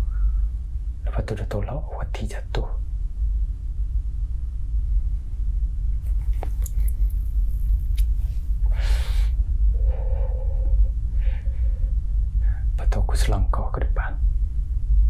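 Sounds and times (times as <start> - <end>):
low rumble: 0.0 - 15.0
man exhaling smoke: 8.0 - 11.7.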